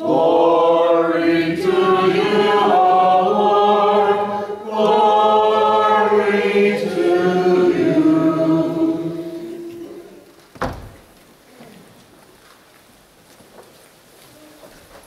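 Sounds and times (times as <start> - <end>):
choir singing unaccompanied chant: 0.0 - 10.3.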